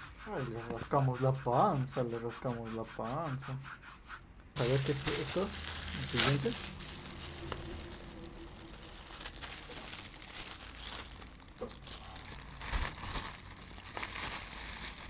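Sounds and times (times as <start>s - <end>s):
plastic bag crinkling and tearing: 4.6s - 15.0s.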